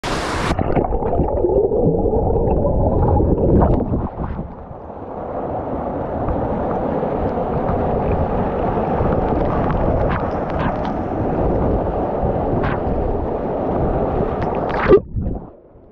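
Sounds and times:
muffled waterfall rush: 0.0 - 0.6.

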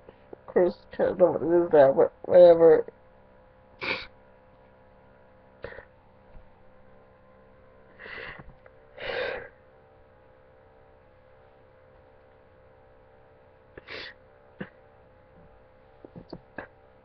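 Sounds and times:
person sniffing: 3.8 - 4.1, 13.8 - 14.2
person sobbing breaths: 3.8 - 4.1, 5.6 - 6.0, 7.9 - 9.6, 13.8 - 14.8.

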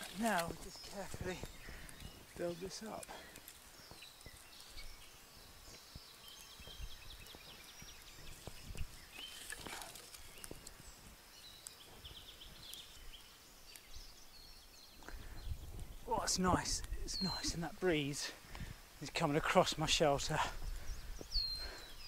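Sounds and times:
sticks gathered from pine needles: 0.0 - 13.9
campfire crackling: 0.0 - 22.0.

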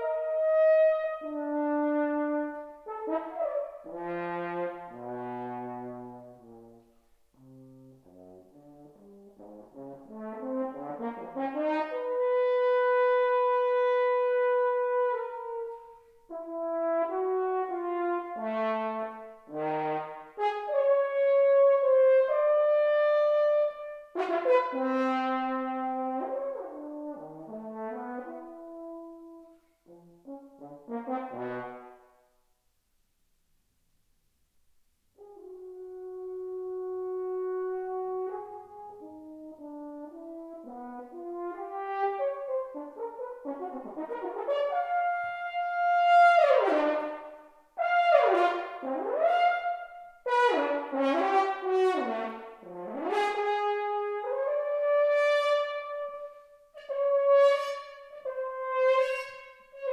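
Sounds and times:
solo french horn: 0.0 - 32.9, 34.5 - 59.9.

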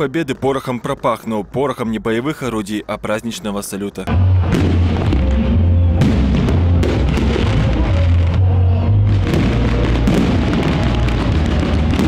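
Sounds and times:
music playing: 4.1 - 12.0
fireworks bangs with crackling: 4.4 - 5.4, 6.0 - 8.4, 9.0 - 12.0.

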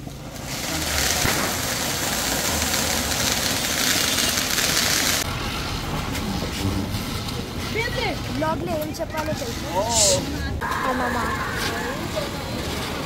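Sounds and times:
firework fountain hissing: 0.0 - 6.2.

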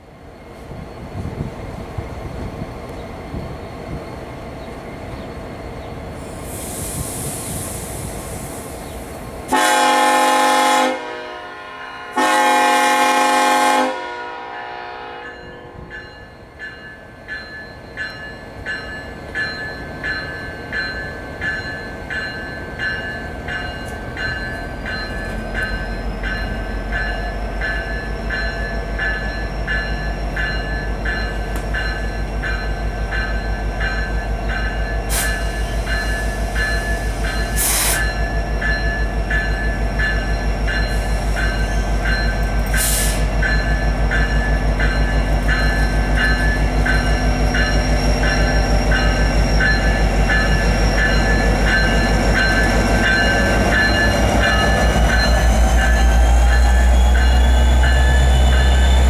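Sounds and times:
air brake hiss: 6.2 - 9.0, 35.1 - 38.1, 42.7 - 43.3
locomotive horn blasts: 9.5 - 15.9
locomotive bell ringing: 14.6 - 59.0.

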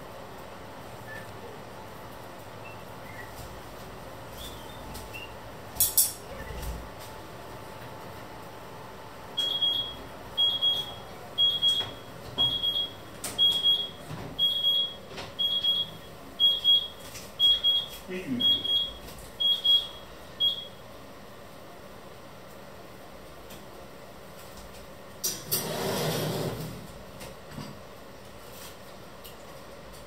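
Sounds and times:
kitchen timer beeping: 9.4 - 20.8.

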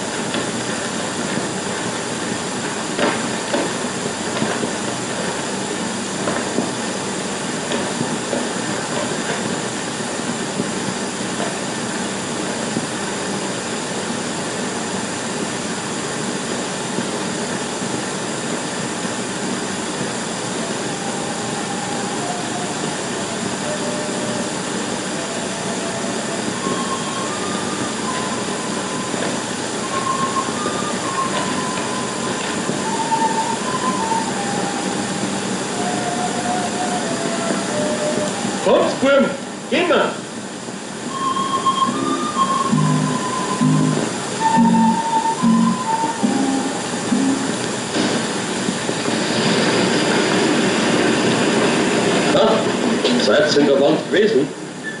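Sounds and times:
film projector clatter: 0.0 - 6.8
hiss and hum: 0.0 - 55.0
simple tune of single notes: 41.1 - 47.6.

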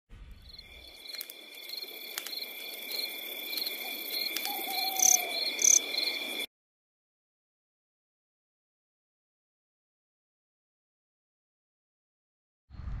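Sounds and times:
insects chirping: 0.3 - 6.5
scattered clicks: 1.0 - 2.5, 3.5 - 5.2.

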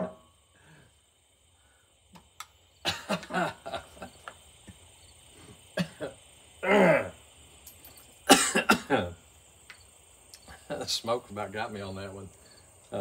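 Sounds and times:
man coughing: 2.8 - 3.8, 5.8 - 7.1, 8.3 - 9.2.

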